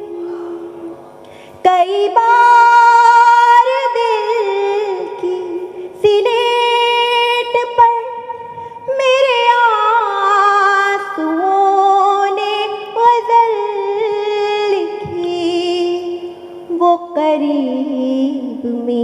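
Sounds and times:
woman singing long held notes: 0:00.0 - 0:01.0.

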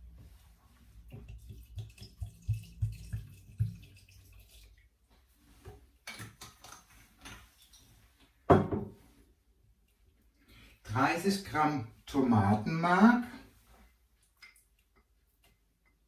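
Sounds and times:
bottle knocking on counter: 0:08.5 - 0:08.9.

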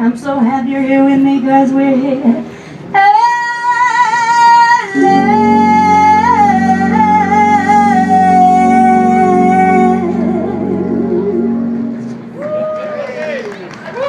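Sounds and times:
woman singing: 0:00.0 - 0:11.8
instrumental accompaniment: 0:04.9 - 0:12.5.

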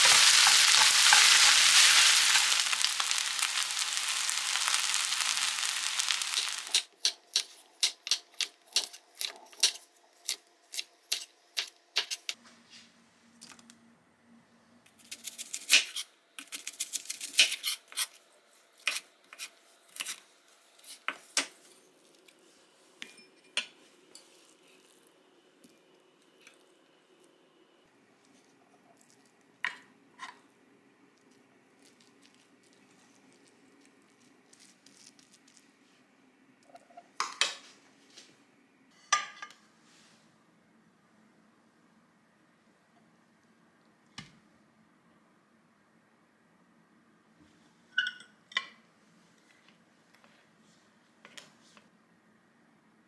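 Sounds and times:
bowl clinking: 0:48.0 - 0:48.4.

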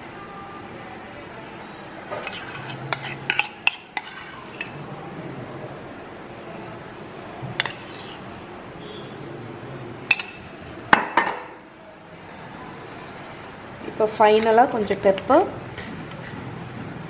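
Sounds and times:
metal spoon clinking on dishes: 0:02.1 - 0:04.7, 0:07.6 - 0:08.2, 0:10.1 - 0:11.6.

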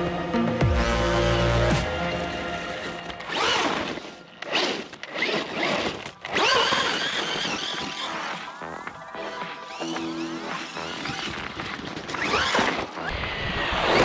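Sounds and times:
rc truck motor whining: 0:03.2 - 0:14.0.

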